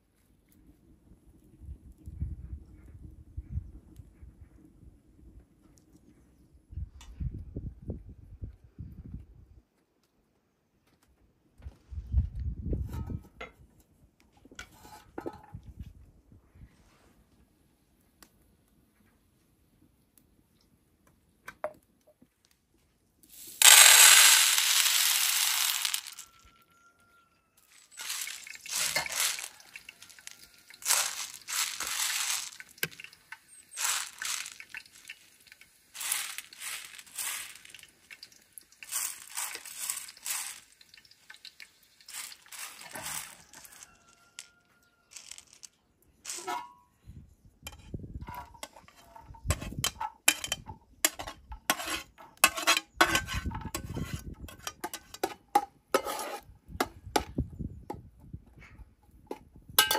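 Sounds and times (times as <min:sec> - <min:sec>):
dry beans rattling on a plate: 0:23.4 - 0:26.6, 0:27.7 - 0:44.5, 0:45.1 - 0:46.7, 0:47.7 - 0:55.4
spoon scraping a plate and pot: 0:27.7 - 0:34.9, 0:42.1 - 0:43.8, 0:46.3 - 0:46.8, 0:47.7 - 0:56.5.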